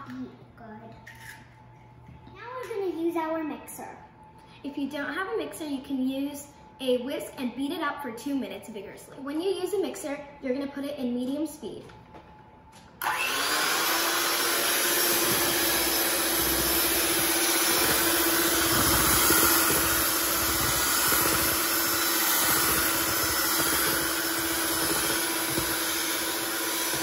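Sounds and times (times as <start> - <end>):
electric hand mixer whirring: 13.0 - 27.0.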